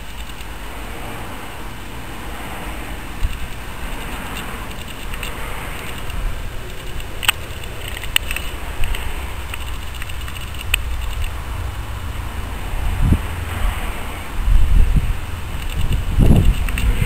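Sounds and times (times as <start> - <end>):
sharp clicks: 0.0 - 0.6, 2.9 - 11.9, 15.5 - 17.0
wind buffeting microphone: 0.0 - 17.0.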